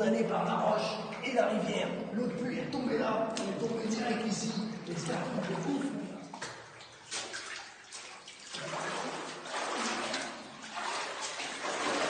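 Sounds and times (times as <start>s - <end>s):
feet wading through water: 2.7s - 12.0s.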